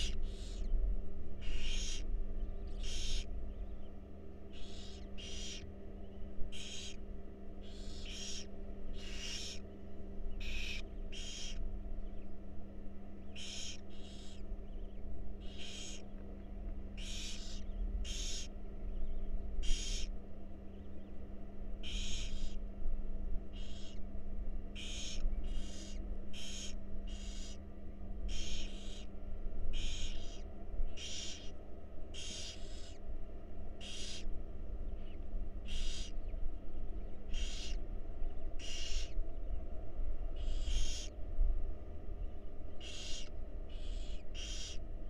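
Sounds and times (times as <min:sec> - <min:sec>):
barn owls hissing: 0:00.0 - 0:00.6, 0:01.4 - 0:02.0, 0:02.8 - 0:03.3, 0:04.5 - 0:05.6, 0:06.5 - 0:07.0, 0:07.6 - 0:09.6, 0:10.4 - 0:11.6, 0:13.4 - 0:14.4, 0:15.4 - 0:16.0, 0:17.0 - 0:18.5, 0:19.6 - 0:20.1, 0:21.8 - 0:22.6, 0:23.6 - 0:24.0, 0:24.8 - 0:27.6, 0:28.3 - 0:29.1, 0:29.8 - 0:30.4, 0:31.0 - 0:31.5, 0:32.1 - 0:33.0, 0:33.8 - 0:34.3, 0:35.6 - 0:36.1, 0:37.3 - 0:37.8, 0:38.6 - 0:39.2, 0:40.4 - 0:41.1, 0:42.8 - 0:44.8
steady low hum: 0:00.0 - 0:45.0.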